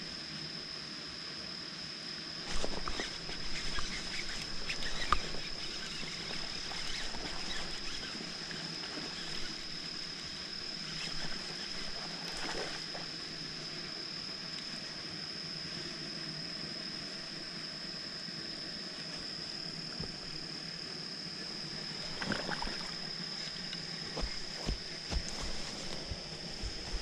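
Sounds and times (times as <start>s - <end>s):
high-pitched whine: 0.0s - 27.0s
fishing reel clicking and whirring: 2.5s - 13.6s.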